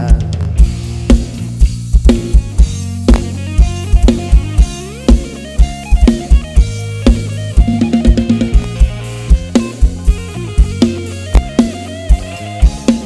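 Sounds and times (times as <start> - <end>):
bass drum and snare beat: 0.0 - 13.0
deep sustained bass line: 0.5 - 12.8
lead instrument sliding melody: 3.2 - 13.0.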